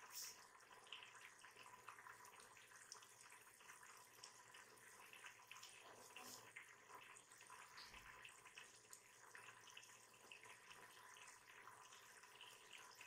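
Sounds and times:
curry bubbling in a pot: 0:00.0 - 0:13.0.

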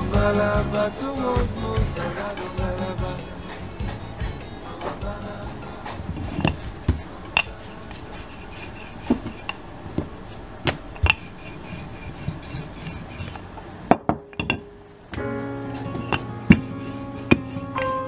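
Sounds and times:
rolling pin rasping on dough: 0:03.4 - 0:13.5, 0:15.9 - 0:18.0.

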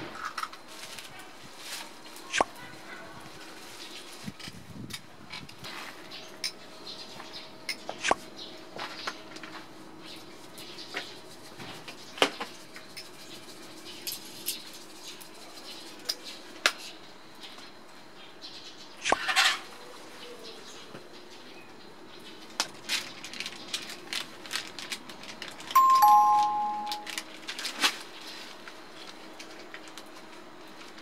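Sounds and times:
two-note chime: 0:25.8 - 0:27.2.

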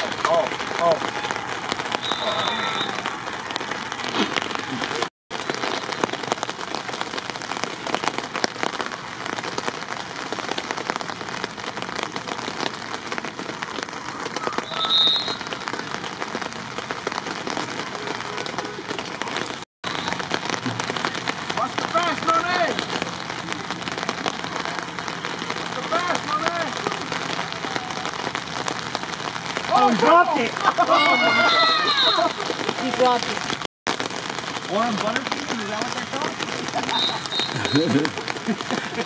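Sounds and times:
rain patter: 0:00.0 - 0:39.0.

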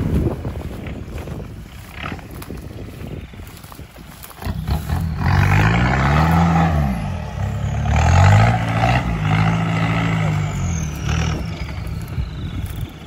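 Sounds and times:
grass swishing against vehicle: 0:00.0 - 0:13.0
suv engine revving hard: 0:04.4 - 0:12.2.

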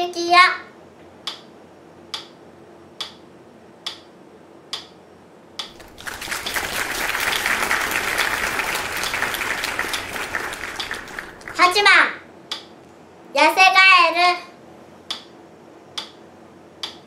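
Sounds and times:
applause: 0:05.7 - 0:11.9.

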